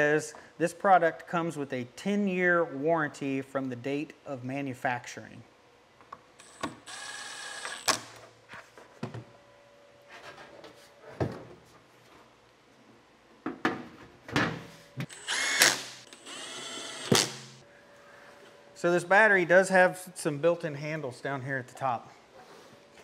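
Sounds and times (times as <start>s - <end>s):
impact driver driving screws: 15.1s - 17.6s.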